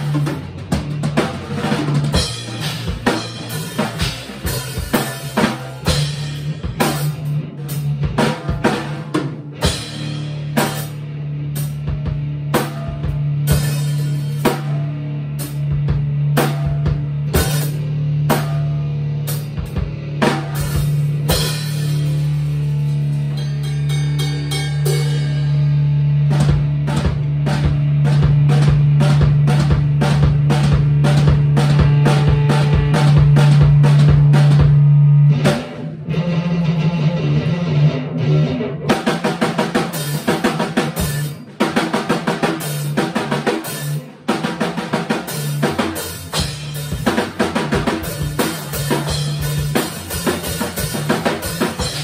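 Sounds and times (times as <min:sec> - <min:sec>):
drum kit playing: 0:00.0 - 0:52.0
sustained electric bass note: 0:14.9 - 0:39.0.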